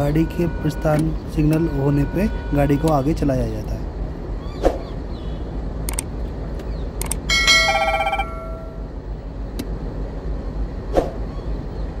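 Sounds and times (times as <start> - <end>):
sharp clicks: 5.8 - 7.3
electronic telephone ringing trill: 7.3 - 8.8.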